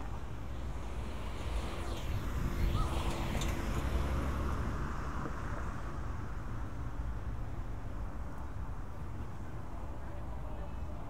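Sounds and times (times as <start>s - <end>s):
low traffic rumble: 0.0s - 11.0s
vehicle passing: 0.2s - 6.1s.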